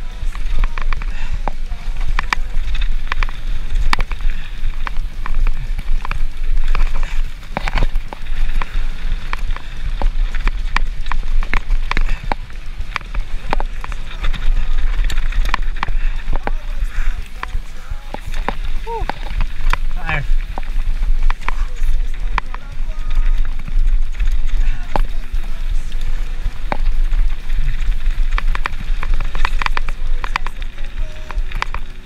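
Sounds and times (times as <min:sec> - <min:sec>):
bike chain rattling: 0:00.0 - 0:32.0
tyres crunching over gravel: 0:00.0 - 0:32.0
wind buffeting microphone: 0:00.0 - 0:32.0.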